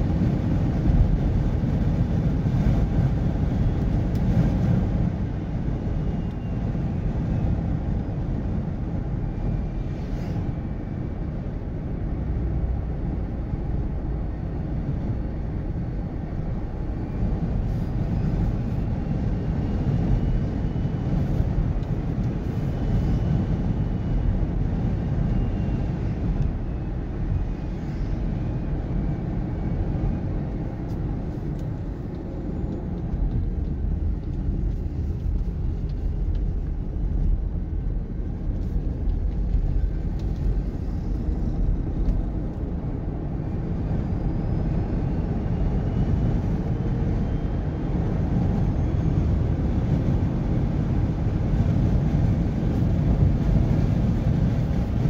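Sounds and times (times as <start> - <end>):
faint whine: 0.0 - 55.0
vehicle road noise rumble: 0.0 - 55.0.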